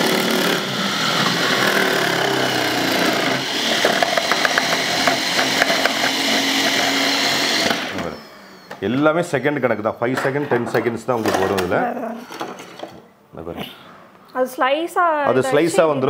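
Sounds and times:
grinder motor running: 0.0s - 8.8s.

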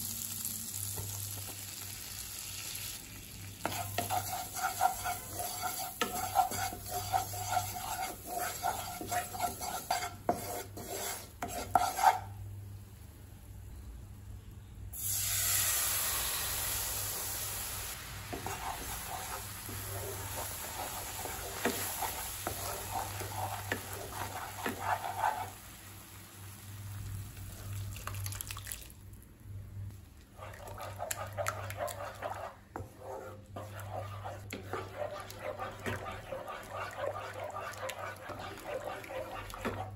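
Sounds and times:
spatula scraping a pan: 3.6s - 12.4s, 18.3s - 25.7s, 30.4s - 39.9s
milk hissing in hot pan: 15.0s - 26.8s.

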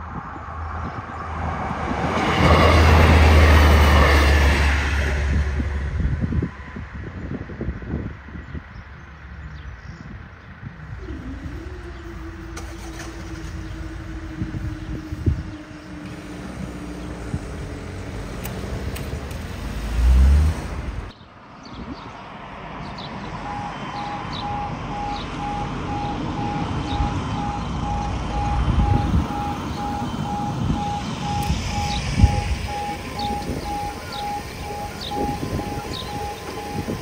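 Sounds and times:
road traffic passing: 0.0s - 37.0s
level crossing warning beeps: 23.4s - 37.0s.

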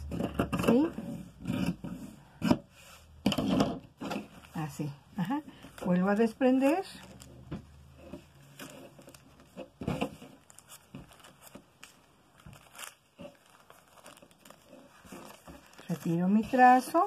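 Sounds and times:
paper and cloth rustling: 4.0s - 17.0s.

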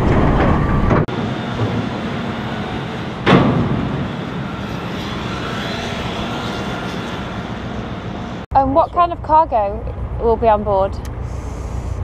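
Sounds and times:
heavy machinery running: 0.0s - 12.0s
loud bang: 2.9s - 6.0s.

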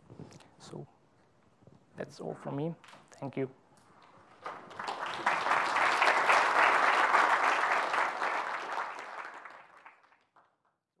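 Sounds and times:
audience applauding: 4.3s - 10.7s.

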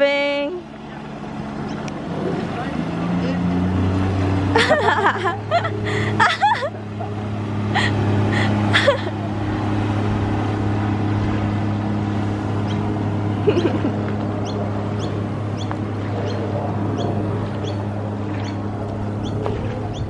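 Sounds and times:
jet ski engine droning: 0.0s - 20.0s
bird chirping: 14.4s - 18.6s, 19.2s - 20.0s.

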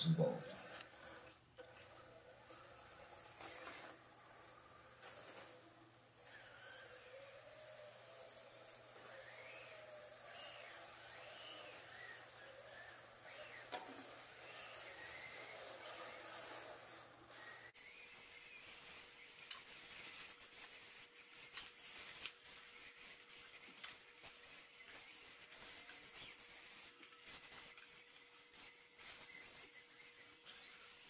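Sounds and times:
electric motor whine: 0.0s - 20.1s
tyres rubbing on foam: 0.0s - 31.0s.

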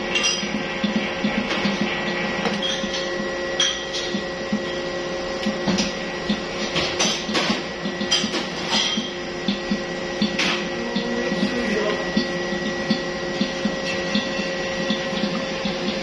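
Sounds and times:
rhythmic knocking of dough hook: 0.0s - 16.0s
stand mixer motor hum: 9.1s - 16.0s.

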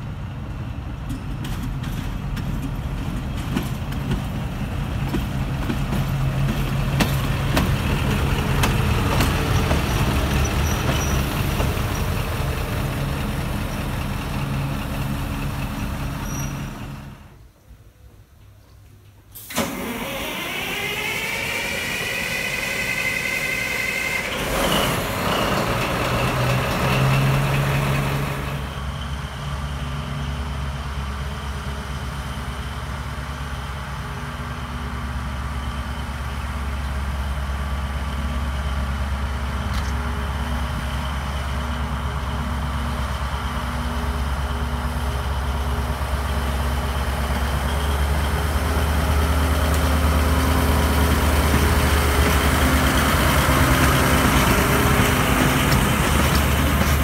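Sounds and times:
diesel locomotive engine: 0.0s - 18.5s, 19.1s - 57.0s.

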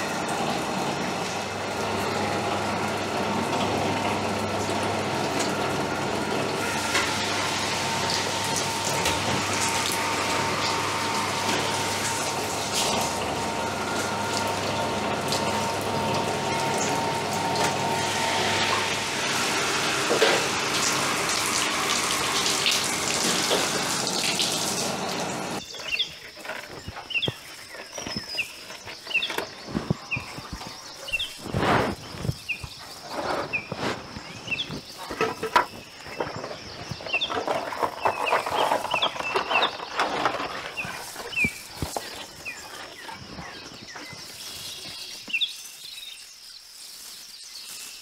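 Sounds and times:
machine hum: 0.0s - 44.4s
rushing splashing water: 6.8s - 25.6s
birds chirping: 20.7s - 48.0s.

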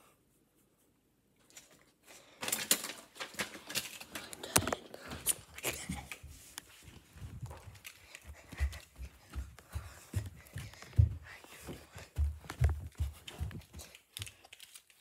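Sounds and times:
phone handling clicks and rustling: 2.4s - 4.9s.

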